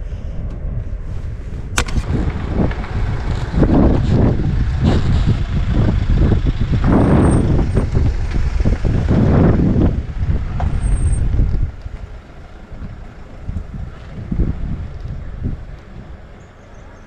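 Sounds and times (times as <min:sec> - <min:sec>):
vehicle rumble: 0:00.0 - 0:17.0
wind buffeting microphone: 0:00.0 - 0:17.0
sharp click: 0:01.8 - 0:02.1.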